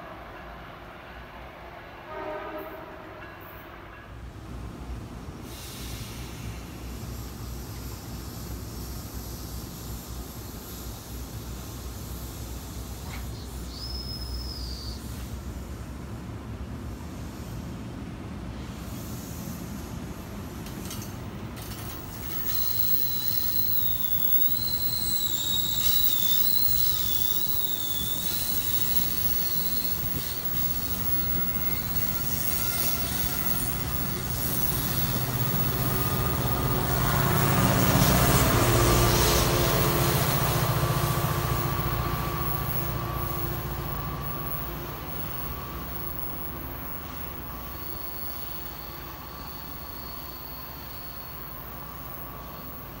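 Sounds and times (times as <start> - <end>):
diesel locomotive engine rumble: 0.0 - 53.0
train wheels squealing: 5.4 - 15.6, 20.6 - 53.0.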